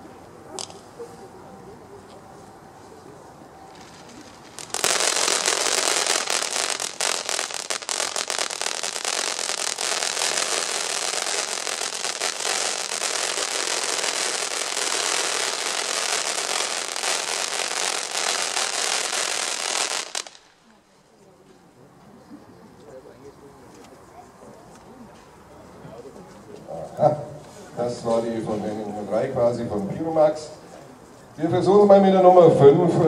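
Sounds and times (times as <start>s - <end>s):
firework fountain hissing and crackling: 3.6s - 20.9s.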